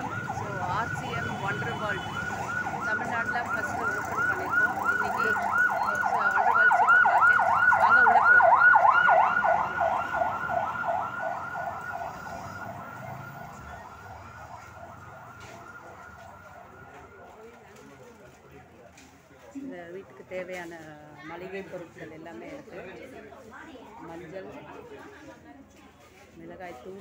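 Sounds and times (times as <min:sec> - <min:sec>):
electronic siren yelping: 0:00.0 - 0:17.2.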